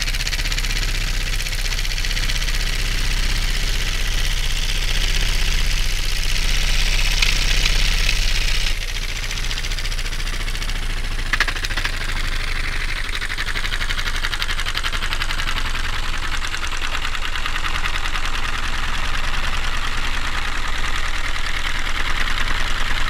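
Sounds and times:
pulsing bee wing drone: 0:00.0 - 0:16.0.

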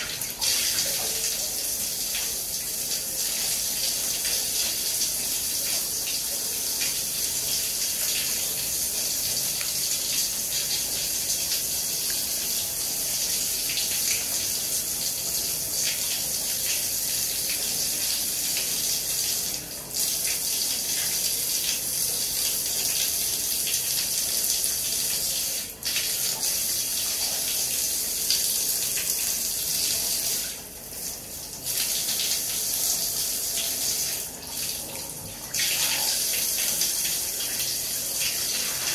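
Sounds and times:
shower water spraying: 0:35.6 - 0:38.9.

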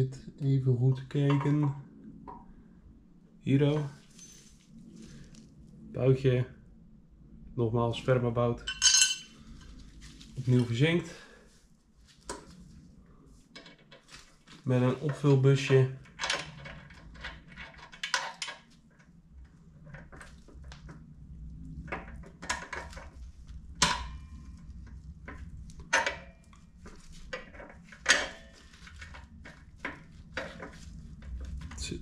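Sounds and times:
faint low hum: 0:00.0 - 0:32.0
small metal parts clinking: 0:08.7 - 0:09.3.

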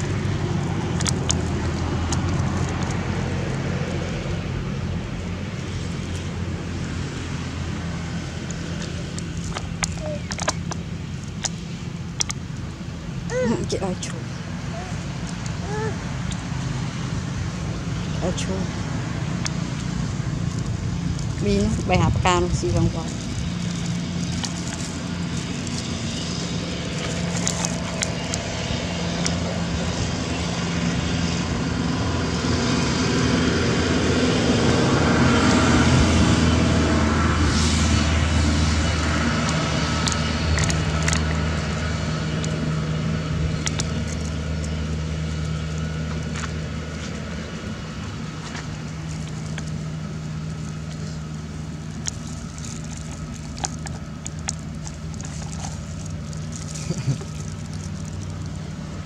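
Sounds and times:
motor engine humming: 0:00.0 - 0:59.0
small clicks and taps: 0:08.4 - 0:10.8.

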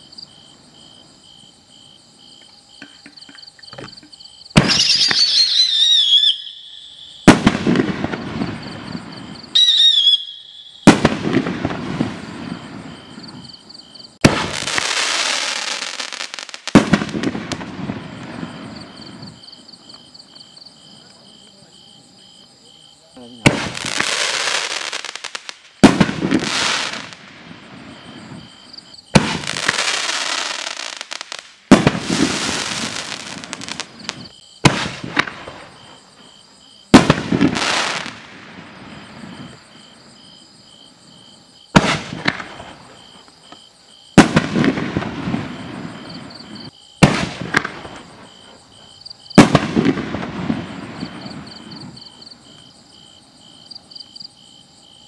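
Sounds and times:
firework bangs: 0:03.8 - 0:19.5, 0:23.2 - 0:39.9, 0:41.7 - 0:52.6
firework crackling: 0:04.5 - 0:13.5, 0:14.1 - 0:19.4, 0:23.4 - 0:36.1, 0:36.9 - 0:39.7, 0:41.7 - 0:43.0, 0:44.1 - 0:48.6, 0:49.3 - 0:52.0.

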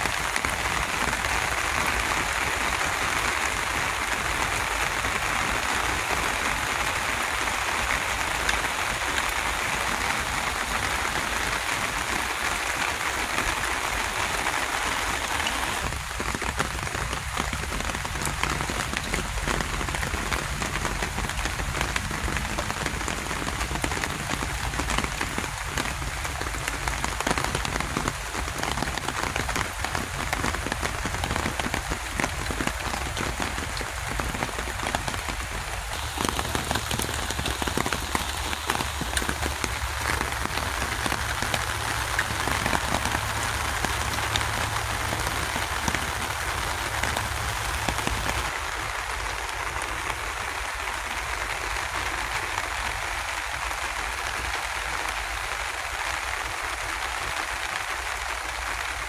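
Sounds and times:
steady rain hiss: 0:00.0 - 0:59.0
raindrops ticking: 0:07.2 - 0:48.6.

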